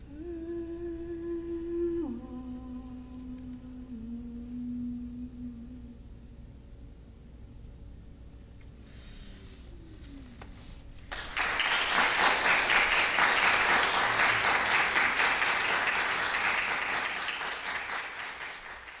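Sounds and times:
audience applauding: 11.0 - 19.0.

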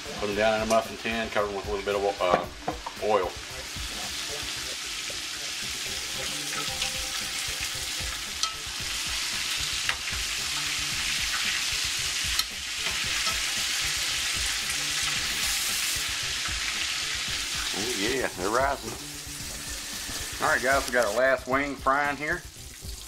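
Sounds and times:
food deep-frying in hot oil: 1.8 - 23.0
metal tongs clicking: 8.4 - 8.7, 12.4 - 13.5.

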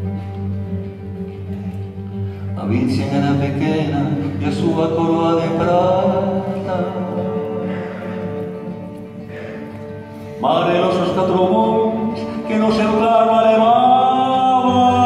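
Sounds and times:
acoustic guitar: 0.0 - 15.0
man singing: 2.4 - 9.3, 10.0 - 15.0.

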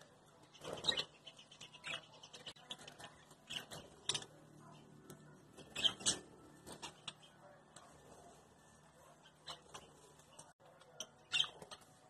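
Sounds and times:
budgerigars chirping: 5.6 - 6.2, 11.1 - 11.8
sharp bird calls: 5.6 - 7.4.

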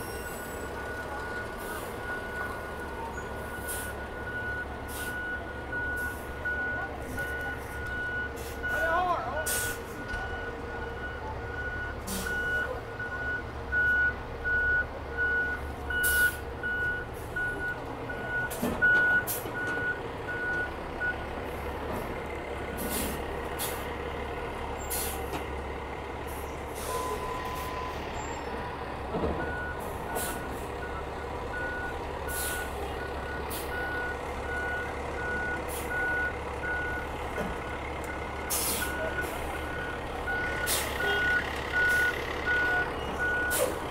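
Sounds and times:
diesel engine running: 0.0 - 43.9
reverse alarm beeping: 10.2 - 21.2, 26.9 - 28.4, 38.8 - 43.7.

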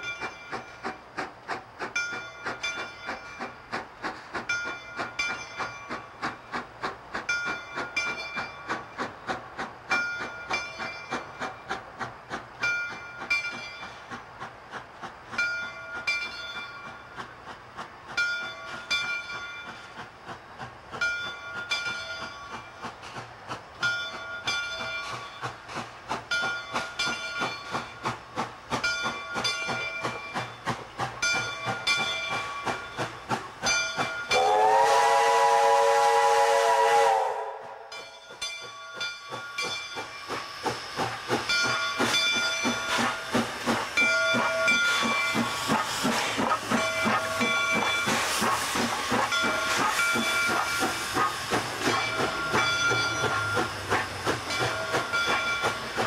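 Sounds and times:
locomotive bell ringing: 0.0 - 0.9, 1.9 - 3.7, 4.4 - 6.2, 7.2 - 8.9, 9.9 - 11.6, 12.6 - 14.1, 15.4 - 17.1, 18.2 - 19.9, 21.0 - 22.9, 23.8 - 25.7, 26.3 - 28.1, 28.8 - 34.7, 37.9 - 56.0
steam locomotive chuffing: 0.0 - 56.0.

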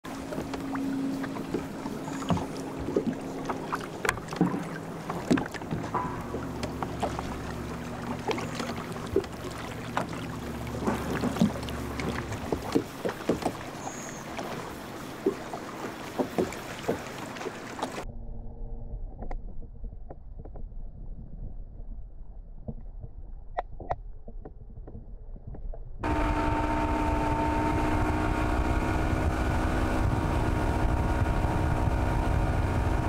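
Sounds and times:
water lapping against boat hull: 0.0 - 18.0
low motor hum: 0.0 - 33.0.

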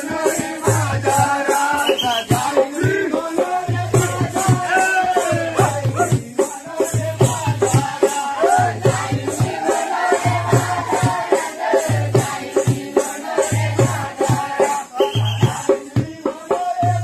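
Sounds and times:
shaker rhythm: 0.0 - 17.0.

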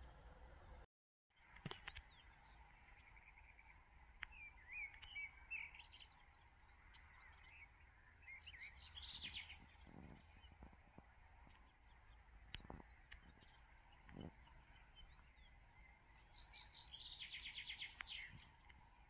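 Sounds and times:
low steady rumble: 0.0 - 0.9
faint bird chirps: 1.4 - 19.0.

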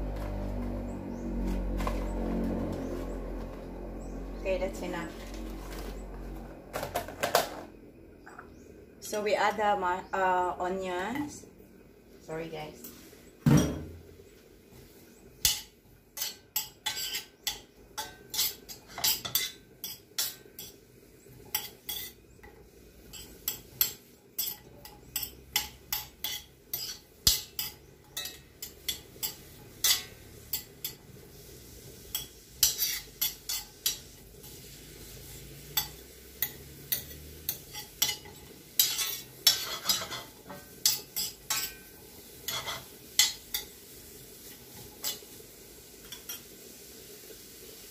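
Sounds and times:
faint sizzle: 0.0 - 47.9
utensil scraping metal pan: 15.4 - 20.8, 21.5 - 22.2, 23.1 - 43.7.

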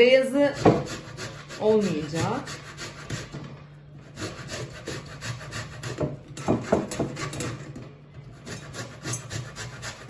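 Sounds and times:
grater rasping: 0.4 - 3.3, 4.1 - 7.6, 8.4 - 10.0.

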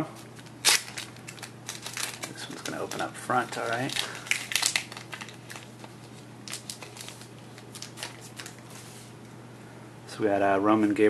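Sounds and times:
steady low hum: 0.0 - 11.0
wrapper crinkling and cards clicking: 0.2 - 8.8.

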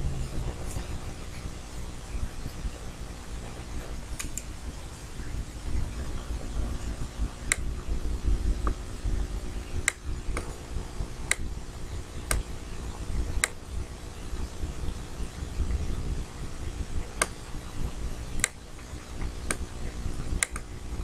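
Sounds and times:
low hum: 0.0 - 21.0
computer mouse clicking: 20.4 - 20.7.

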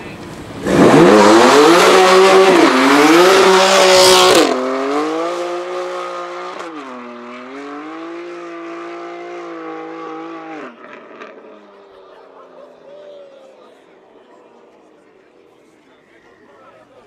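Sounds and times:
car engine revving: 0.4 - 12.5.

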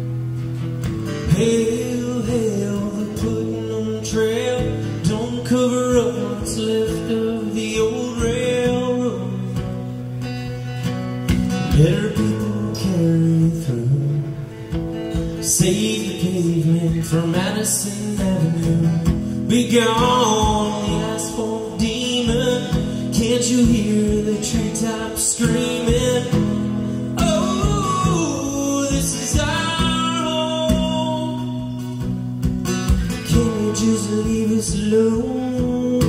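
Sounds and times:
acoustic guitar strumming: 0.0 - 36.0
man singing: 1.2 - 9.9, 11.5 - 32.3, 32.9 - 36.0.

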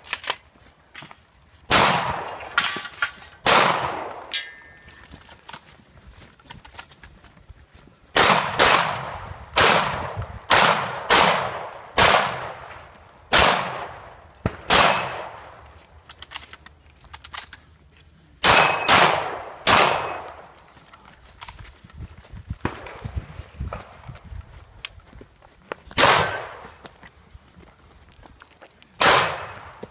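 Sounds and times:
gunshots with echoing decay: 1.7 - 4.8, 8.2 - 15.8, 18.4 - 20.6, 22.6 - 24.0, 26.0 - 26.8, 29.0 - 29.9.

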